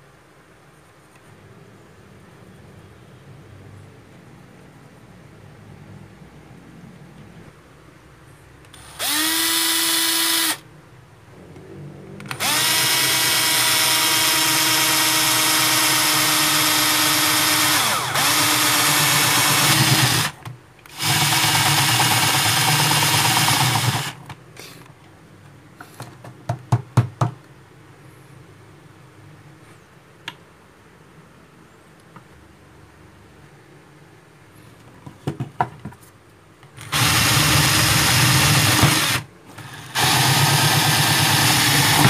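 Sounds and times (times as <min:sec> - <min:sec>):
power drill boring into wood: 0:08.7 - 0:10.6, 0:12.3 - 0:24.2, 0:36.8 - 0:42.0.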